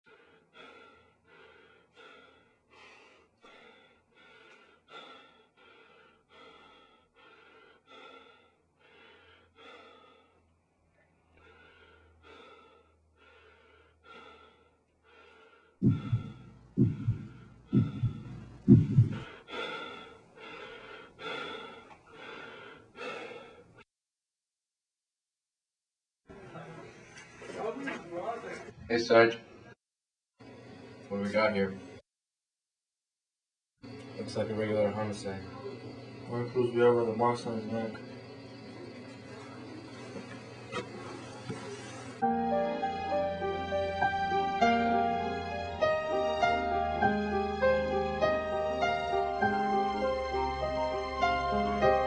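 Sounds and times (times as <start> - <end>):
heavy rhythmic panting: 0.1 - 10.4, 11.3 - 23.8
loud low thuds: 15.8 - 19.3.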